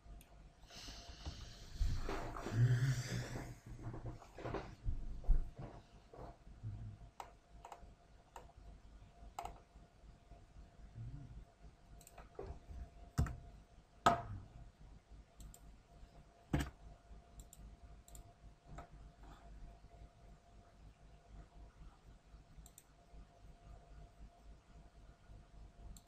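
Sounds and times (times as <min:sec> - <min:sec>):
faint electrical hum: 0:00.0 - 0:26.0
computer mouse clicking: 0:07.2 - 0:08.6, 0:09.4 - 0:09.7, 0:11.9 - 0:12.3, 0:15.4 - 0:15.7, 0:17.4 - 0:19.0, 0:22.6 - 0:23.0.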